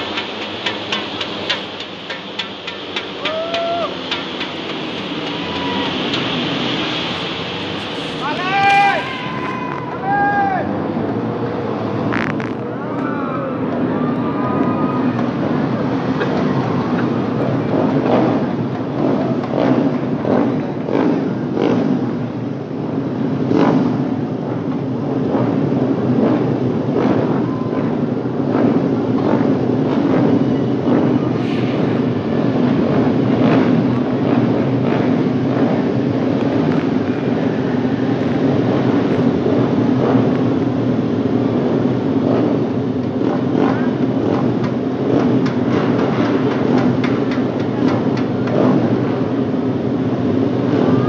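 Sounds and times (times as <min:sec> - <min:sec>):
racing motorcycle engines: 0:00.0 - 0:51.0.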